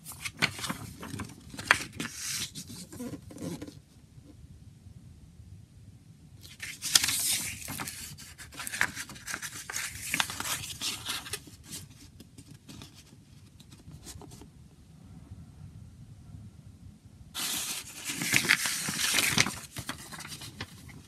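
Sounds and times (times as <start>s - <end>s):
paper rustling and crinkling: 0.0s - 3.8s, 6.4s - 14.5s, 17.4s - 21.0s.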